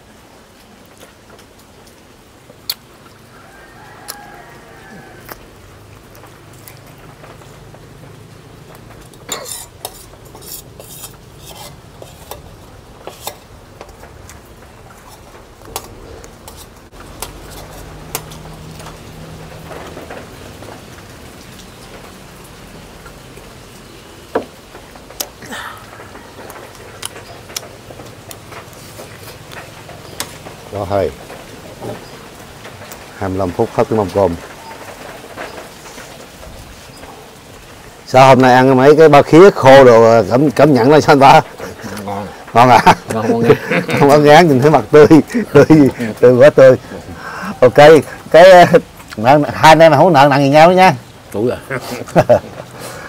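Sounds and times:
dishes and utensils clinking: 9.0s - 13.5s.

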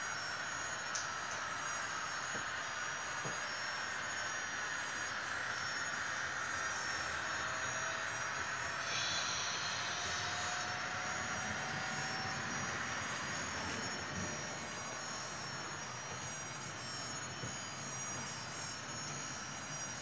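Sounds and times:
faint motor whine: 0.0s - 20.0s
model train rolling hiss: 3.8s - 16.1s.

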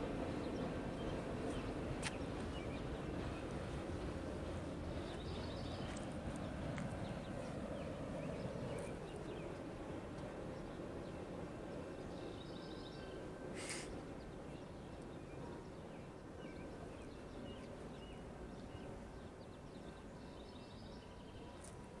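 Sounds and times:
small birds chirping: 4.4s - 9.7s
short hiss: 13.6s - 14.0s.

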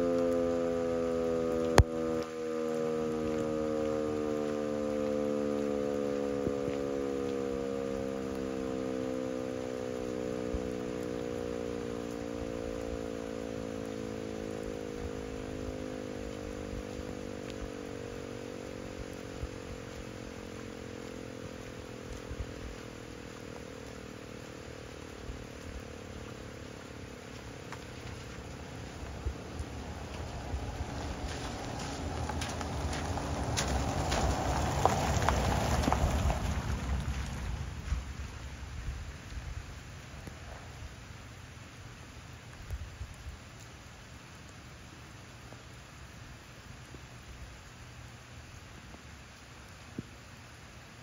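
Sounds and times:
warning siren winding down: 0.0s - 38.4s.

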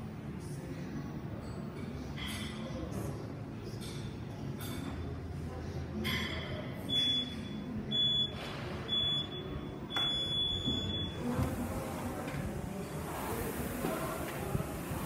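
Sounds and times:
timer beeps: 6.9s - 11.2s.

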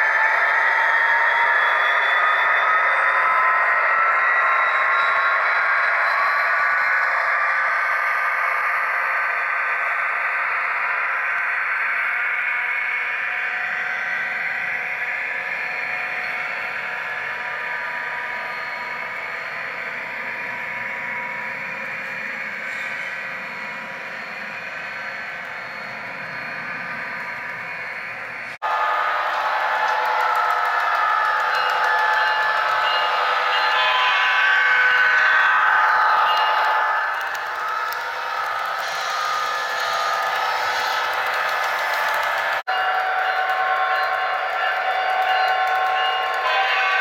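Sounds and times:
model train motor whirring: 36.3s - 42.6s.

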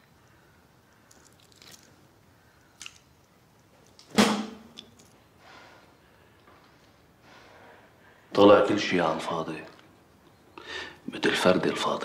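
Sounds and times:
faint small clicks and rustles: 0.0s - 4.1s.

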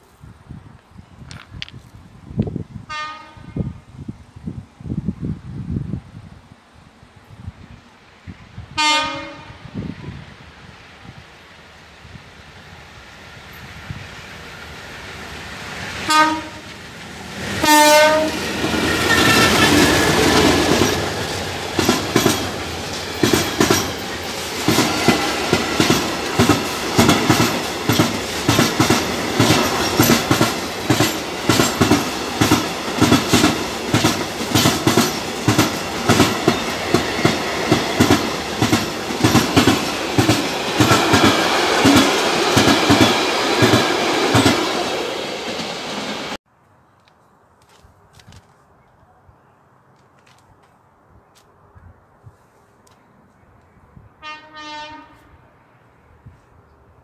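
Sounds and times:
train horn: 2.9s - 3.8s, 8.7s - 9.8s, 16.0s - 16.8s, 17.6s - 18.5s, 54.2s - 55.5s
locomotive engine passing: 10.8s - 46.4s
wheels clicking over rail joints: 18.7s - 44.7s.

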